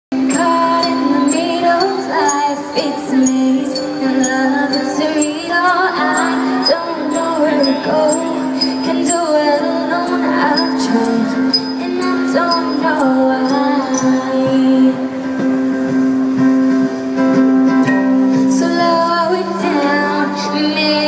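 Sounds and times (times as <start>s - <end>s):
live pop band playing: 0.1s - 21.0s
girl singing: 0.2s - 15.1s, 18.4s - 21.0s.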